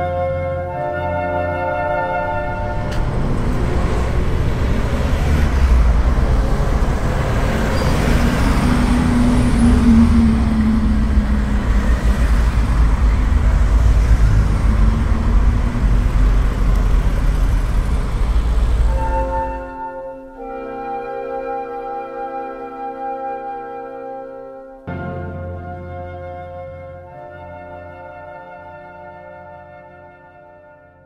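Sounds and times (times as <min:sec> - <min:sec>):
loud low rumbling: 0:01.8 - 0:19.8
low hum: 0:01.8 - 0:19.8.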